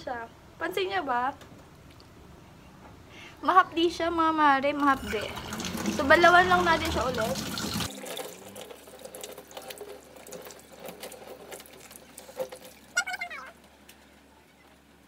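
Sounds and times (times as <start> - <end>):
water splashing and dripping: 4.8 - 13.1.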